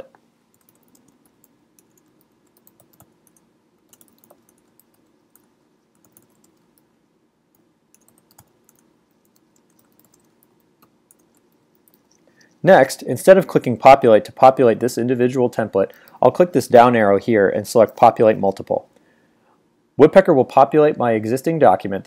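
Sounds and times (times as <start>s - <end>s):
faint low hum: 0.0s - 22.0s
typing on a computer keyboard: 0.5s - 6.9s, 7.9s - 12.6s.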